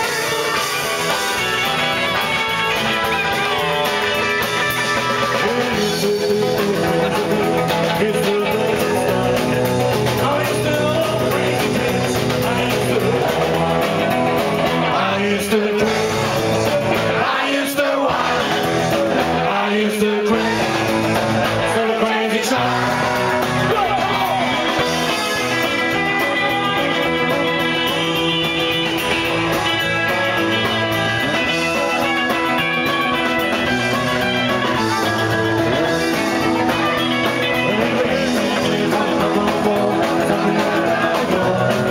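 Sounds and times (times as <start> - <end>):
bass guitar: 0.0 - 41.9
electric guitar: 0.0 - 41.9
person singing: 5.1 - 28.3, 34.8 - 41.9.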